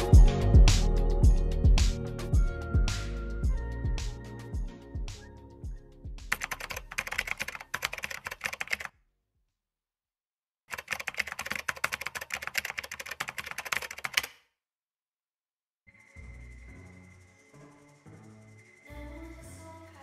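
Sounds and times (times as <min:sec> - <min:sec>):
music: 0:00.0 - 0:06.6, 0:15.9 - 0:20.0
fast keyboard typing: 0:06.3 - 0:08.9, 0:10.7 - 0:14.4.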